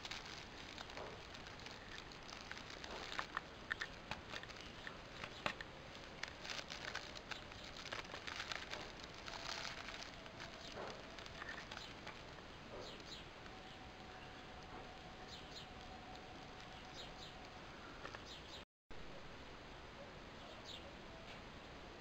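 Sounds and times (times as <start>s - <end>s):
plastic bag crinkling: 0.0s - 17.6s.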